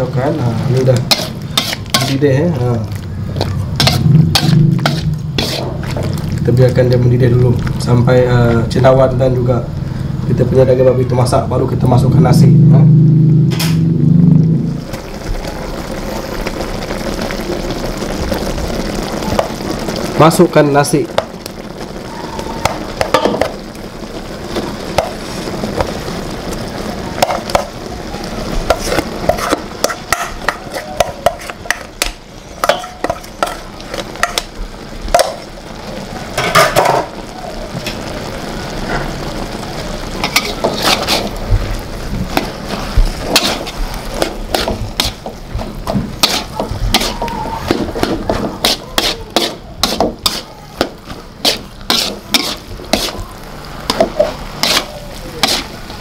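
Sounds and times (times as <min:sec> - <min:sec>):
spatula scraping wok: 0:00.0 - 0:07.0, 0:21.1 - 0:35.5, 0:37.8 - 0:56.0
sauce sizzling in wok: 0:00.0 - 0:56.0.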